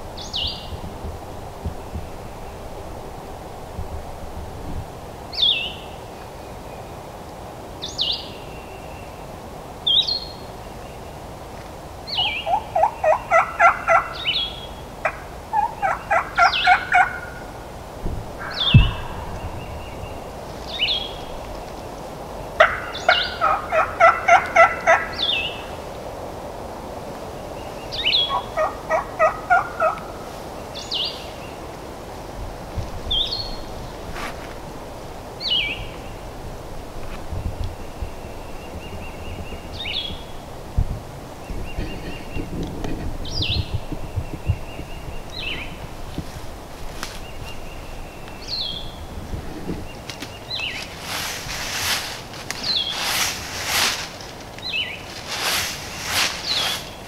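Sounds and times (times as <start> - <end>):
turkey yelping: 12.2 - 14.4, 15.0 - 17.5, 18.4 - 20.0, 22.6 - 25.5, 28.0 - 30.1
low thump: 18.0 - 20.4
small bird chirping: 18.4 - 21.7, 52.6 - 53.8, 54.6 - 57.0.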